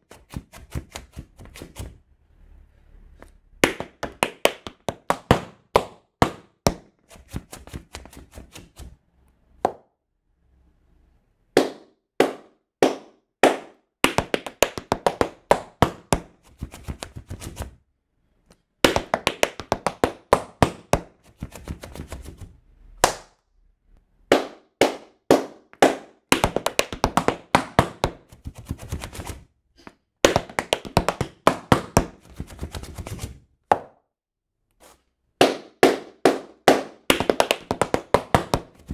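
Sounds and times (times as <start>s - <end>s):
tap shoes on wooden floor: 3.6s - 8.9s, 11.6s - 17.8s, 18.8s - 22.4s, 24.3s - 34.0s, 35.4s - 38.9s.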